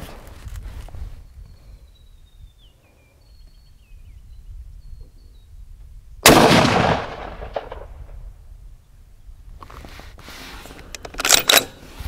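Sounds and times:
rifle shot: 6.2s - 8.2s.

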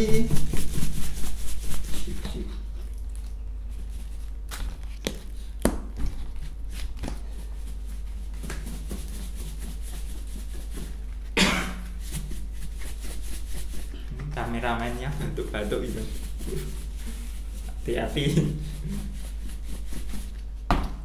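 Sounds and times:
powder shaken in a tub: 0.0s - 4.5s
person coughing: 11.4s - 11.9s.

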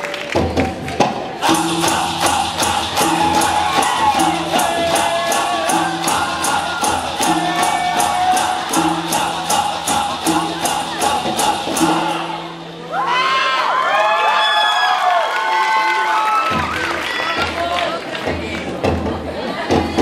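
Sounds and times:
fast percussion beat: 0.3s - 13.2s
person singing wavering melody: 1.4s - 13.2s.

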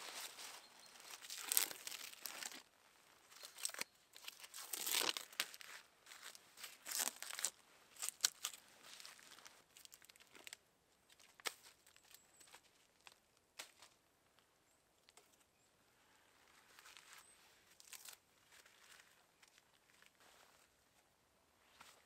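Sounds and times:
leaf litter rustling and crunching: 0.0s - 2.7s, 3.3s - 10.6s.

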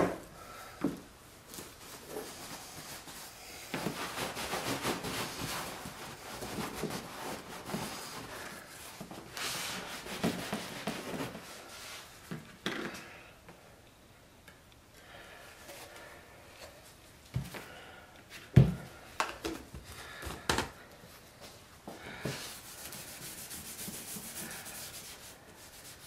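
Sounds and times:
paper towel rubbing leather: 1.9s - 8.4s.

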